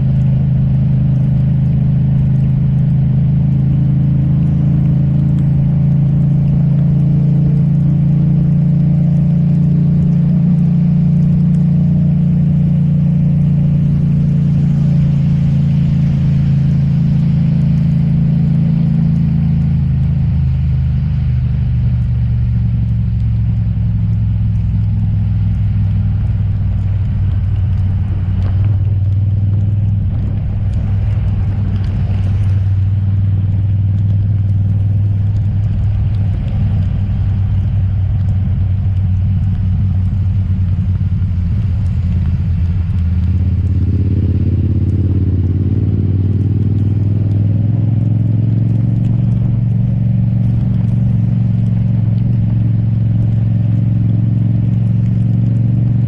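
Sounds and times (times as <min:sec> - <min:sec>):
motorcycle engine running: 0:00.0 - 0:56.0
wet road noise: 0:00.0 - 0:56.0
wind noise: 0:23.0 - 0:54.0.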